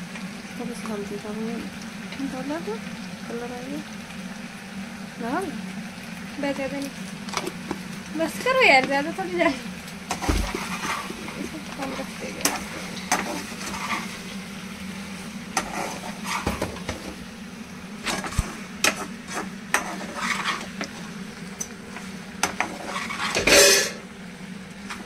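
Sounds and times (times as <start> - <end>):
steady low hum: 0.0 - 25.0
spatula scraping frying pan: 10.0 - 14.4, 15.5 - 17.2, 18.0 - 21.2, 21.8 - 24.0.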